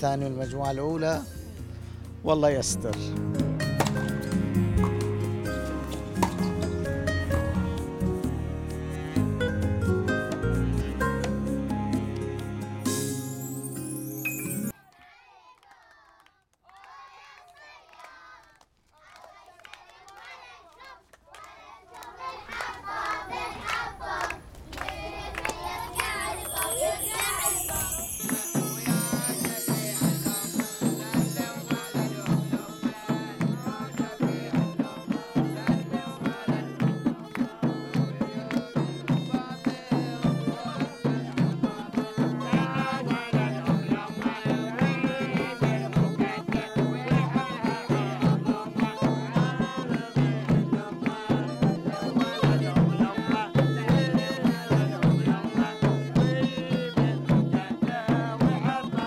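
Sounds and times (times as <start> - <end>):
jingling high notes: 12.5 - 14.8, 25.5 - 35.6
fast drum beat: 26.0 - 59.0.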